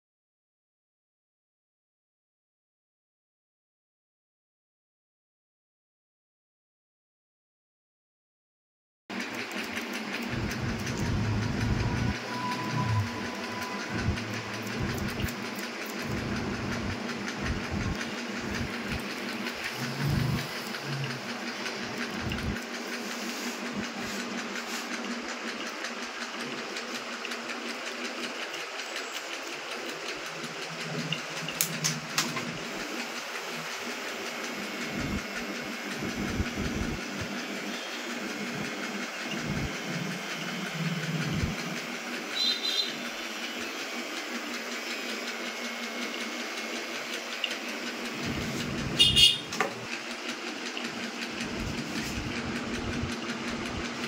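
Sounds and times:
low hum: 10.2 - 22.9, 34.8 - 37.3.

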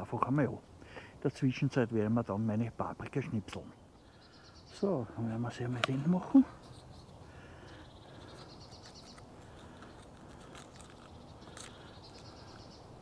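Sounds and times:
songbird trilling: 3.6 - 13.0.

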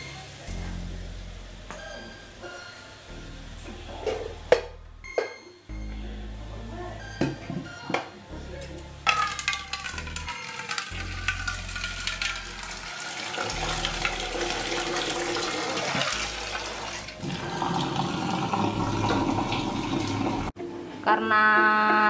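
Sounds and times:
tap water gushing into metal pot: 9.3 - 20.5.

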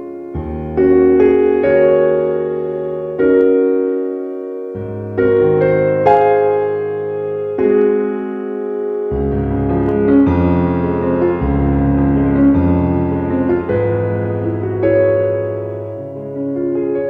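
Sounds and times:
piano chords: 0.0 - 17.0
low bass notes: 9.1 - 16.6.

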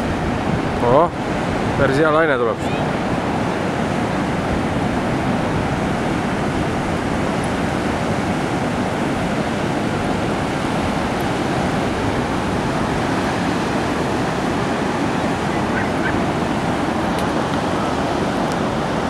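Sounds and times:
surf washing up the beach: 0.0 - 19.0.

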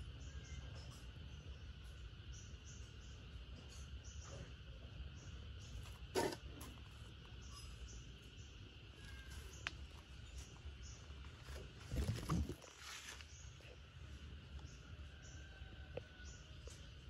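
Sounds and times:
rustling bumps: 11.2 - 13.4.

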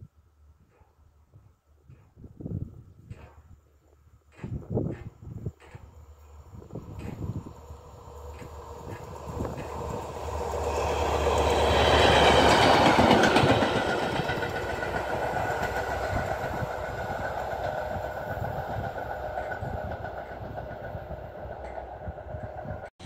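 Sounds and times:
diesel locomotive passing: 5.1 - 23.0.

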